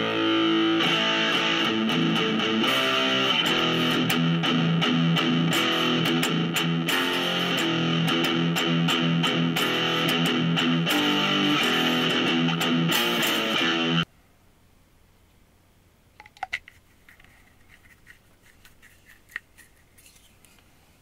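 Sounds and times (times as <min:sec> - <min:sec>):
electric guitar notes and strums: 0:00.0 - 0:14.1.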